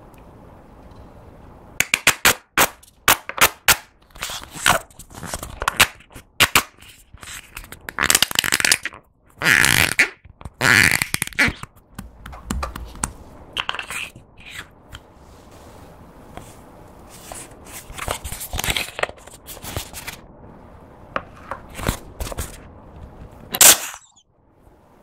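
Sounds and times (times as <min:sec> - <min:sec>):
plastic tube crinkling: 0:02.8 - 0:14.7, 0:17.1 - 0:20.2.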